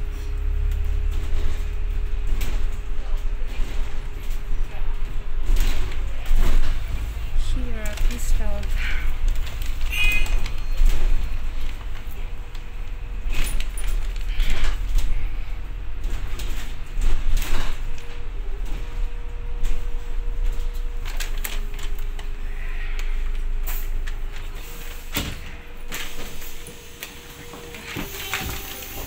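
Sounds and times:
bus engine rumble: 0:00.0 - 0:29.0
bodywork and windows rattling: 0:00.6 - 0:22.4.

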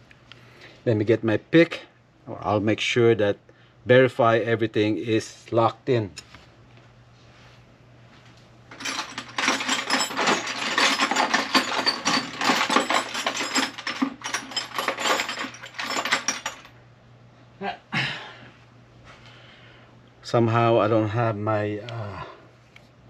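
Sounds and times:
faint steady hum: 0:00.0 - 0:23.0
metal tools rattling in toolbox: 0:08.7 - 0:16.7.

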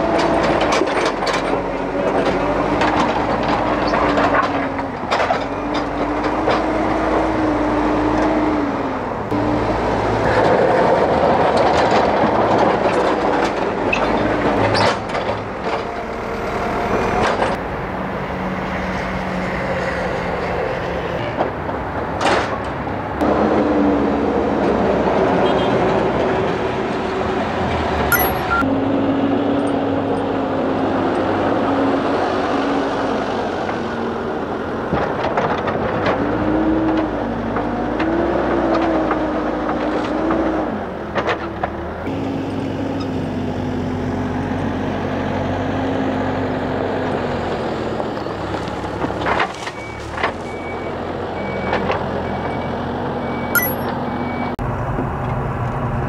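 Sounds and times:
heavy diesel machinery engines: 0:00.0 - 0:56.0
reversing alarm beeping: 0:28.1 - 0:28.7, 0:49.8 - 0:54.6.

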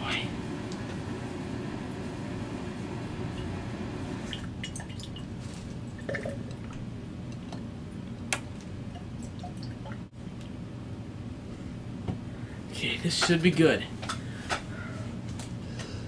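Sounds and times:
low room hum: 0:00.0 - 0:16.0
liquid dripping into water: 0:05.9 - 0:10.1.

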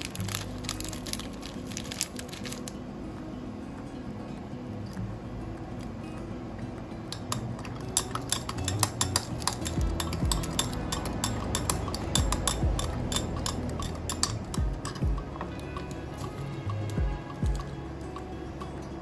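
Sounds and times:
chopstick clinking against glass jar: 0:07.1 - 0:18.8.

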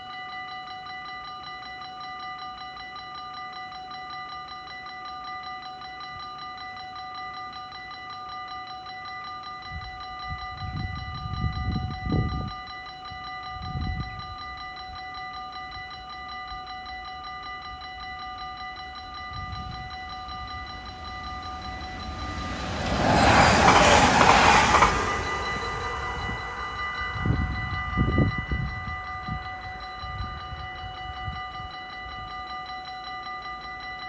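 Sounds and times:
level-crossing warning bell: 0:00.0 - 0:34.0
train passing: 0:18.8 - 0:30.2.

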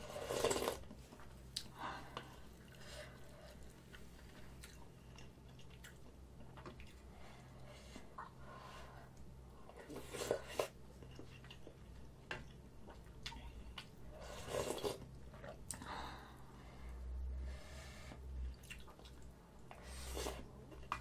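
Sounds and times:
person slurping and chewing: 0:00.0 - 0:00.8, 0:14.1 - 0:15.6.

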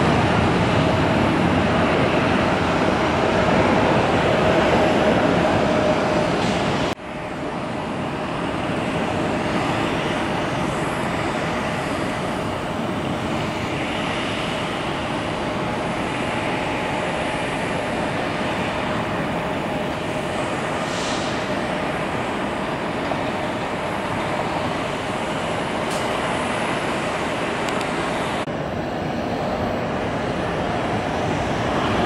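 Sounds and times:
jet engine rolling on runway: 0:00.0 - 0:32.0.

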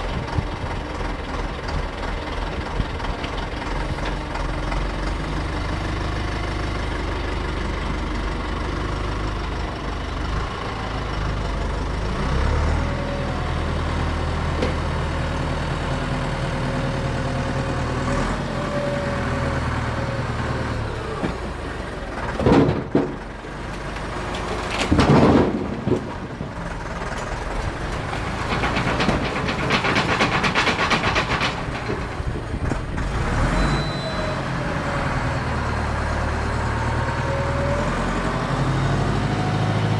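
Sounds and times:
tractor diesel engine running: 0:00.0 - 0:39.9
loud squeals: 0:33.3 - 0:34.5.

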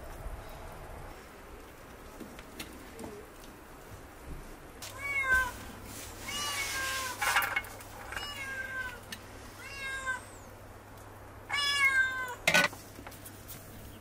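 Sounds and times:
cat meowing: 0:04.9 - 0:05.6, 0:09.6 - 0:10.5, 0:11.5 - 0:12.4
ladle clattering on metal dishes: 0:12.5 - 0:12.8.

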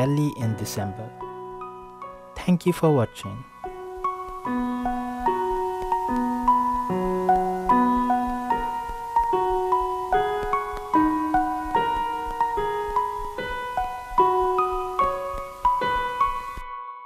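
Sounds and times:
gentle piano melody: 0:00.0 - 0:17.0.

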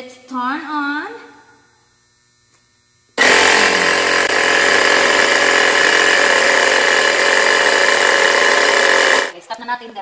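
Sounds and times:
air compressor running: 0:03.0 - 0:09.4.

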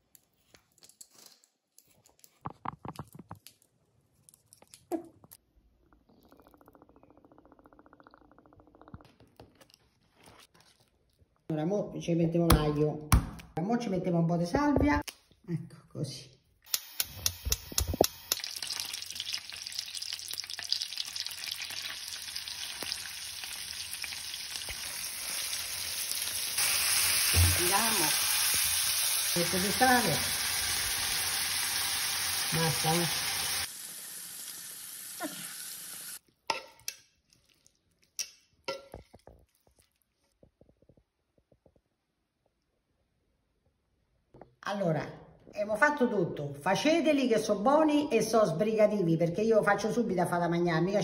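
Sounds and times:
meat sizzling in a frying pan: 0:17.3 - 0:36.2.

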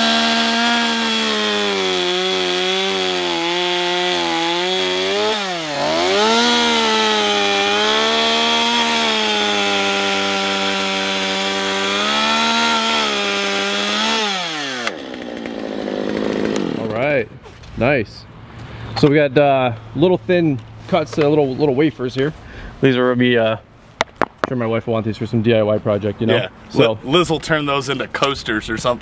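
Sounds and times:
chainsaw cutting log: 0:00.0 - 0:17.0.

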